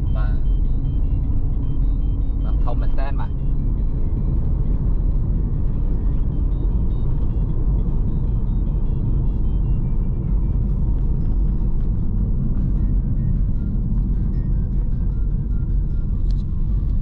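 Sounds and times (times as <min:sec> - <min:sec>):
car road rumble: 0:00.0 - 0:17.0.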